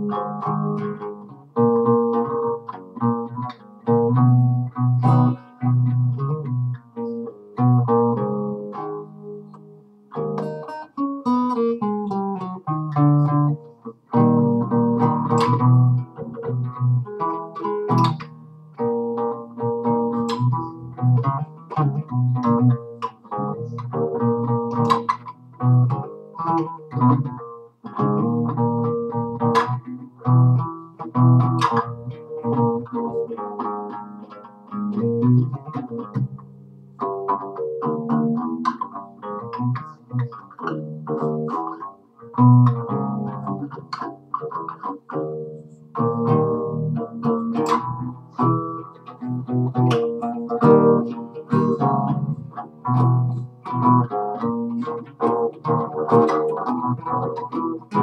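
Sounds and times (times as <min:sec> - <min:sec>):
classical guitar playing: 0:00.0 - 0:58.0.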